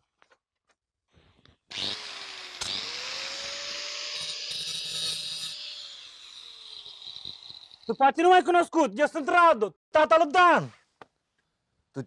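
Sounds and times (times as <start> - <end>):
power tool motor running: 1.7 - 8.0.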